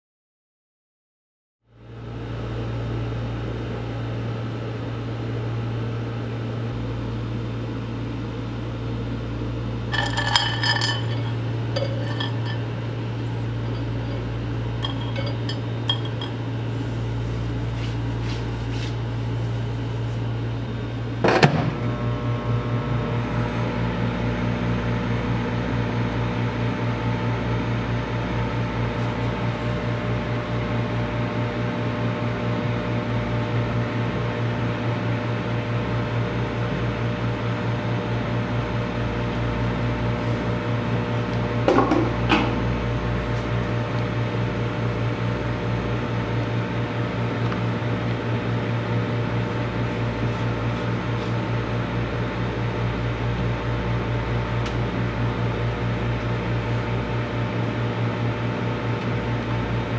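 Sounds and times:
microwave oven humming: 0:01.7 - 0:59.9
tablets clinking on glass: 0:09.9 - 0:12.7, 0:13.6 - 0:16.4.

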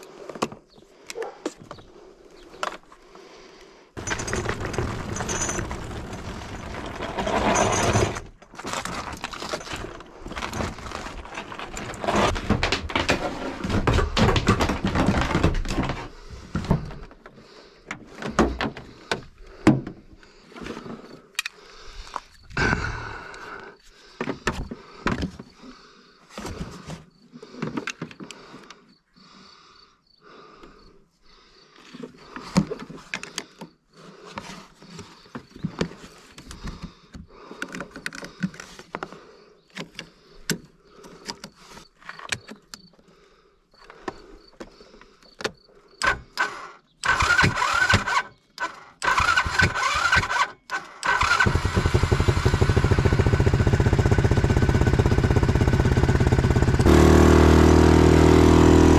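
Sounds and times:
quad bike engine cranking and running: 0:04.0 - 0:08.4, 0:46.0 - 0:58.9.

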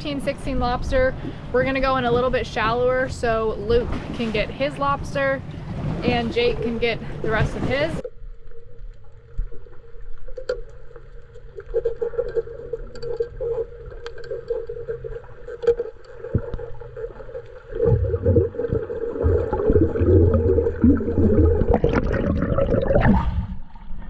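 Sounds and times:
underwater hum: 0:00.0 - 0:24.0
water splashing: 0:02.6 - 0:24.0
water churning past microphone: 0:02.9 - 0:24.0
sharp underwater clicks: 0:08.0 - 0:19.8.

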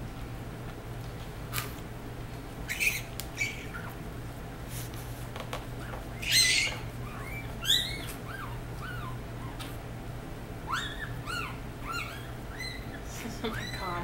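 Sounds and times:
puppies squeaking: 0:02.7 - 0:04.0, 0:05.7 - 0:09.8, 0:10.6 - 0:14.0.

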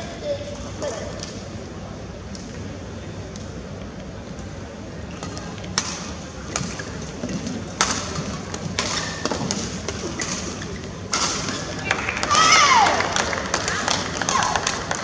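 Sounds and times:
hall background noise: 0:00.0 - 0:15.0
rackets hitting shuttlecock: 0:05.2 - 0:15.0.

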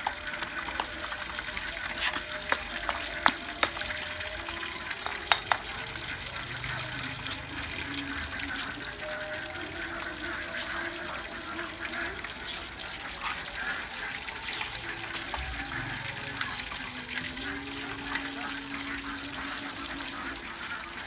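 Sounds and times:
spoon scraping in stone mortar: 0:00.0 - 0:04.0, 0:04.8 - 0:05.7, 0:12.4 - 0:13.4.

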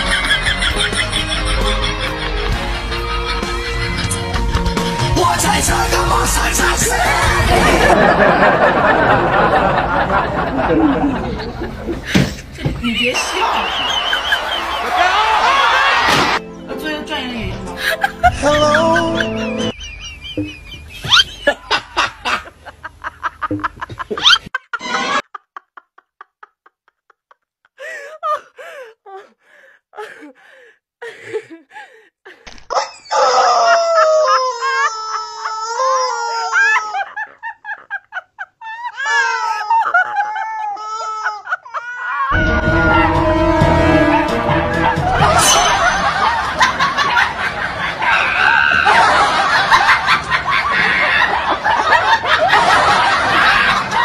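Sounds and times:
person giggling and laughing: 0:00.0 - 0:04.2, 0:17.8 - 0:29.3, 0:36.6 - 0:42.4
person's voice: 0:05.2 - 0:07.4, 0:18.3 - 0:19.5.

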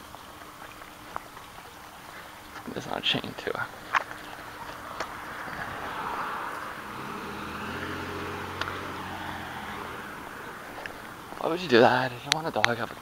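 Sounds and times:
low engine hum: 0:00.1 - 0:13.0
car tyre noise: 0:01.9 - 0:13.0
faint clicks: 0:08.6 - 0:08.8.

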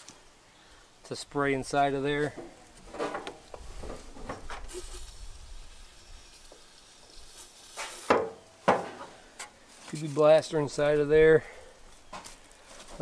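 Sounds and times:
aerosol can spraying: 0:04.7 - 0:08.3.

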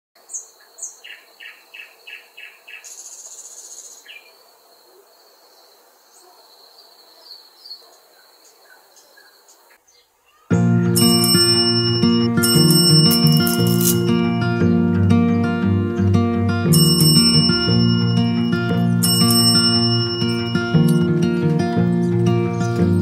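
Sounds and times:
birds calling: 0:00.2 - 0:10.7, 0:17.1 - 0:23.0
music with bell-like notes: 0:10.6 - 0:23.0
high insect-like tone: 0:12.7 - 0:14.4
buzzy high trill: 0:16.7 - 0:23.0.

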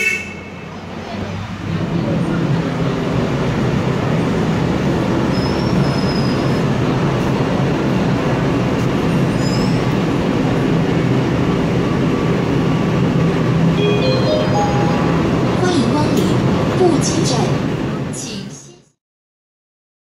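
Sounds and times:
electric train rumbling: 0:00.0 - 0:19.0
brief high squeals: 0:09.4 - 0:09.8.

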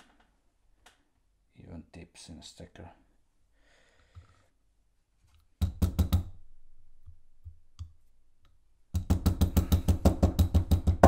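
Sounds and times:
metal tube knocking on wood: 0:09.0 - 0:11.0.

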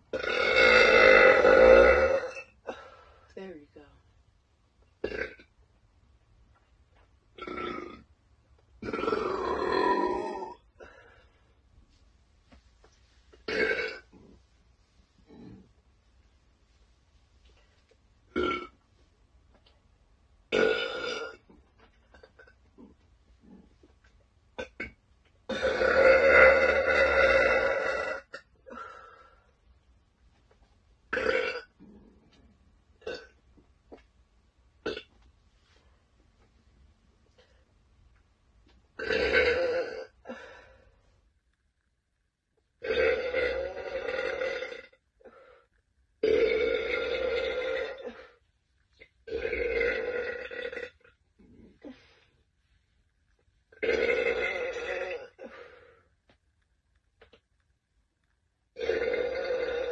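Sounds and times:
woman burping: 0:00.1 - 0:02.9, 0:05.0 - 0:05.5, 0:08.8 - 0:11.0, 0:18.3 - 0:18.7, 0:20.5 - 0:21.4, 0:24.6 - 0:29.0, 0:31.1 - 0:31.8, 0:39.0 - 0:40.5, 0:46.2 - 0:48.4, 0:53.8 - 0:55.8.

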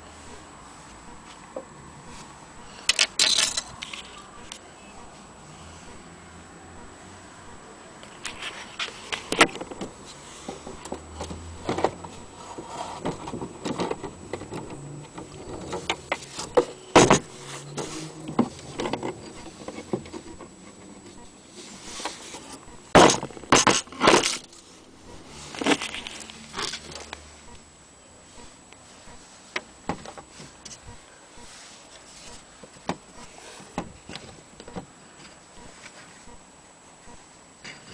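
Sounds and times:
rustling: 0:08.0 - 0:27.6, 0:28.2 - 0:36.4.

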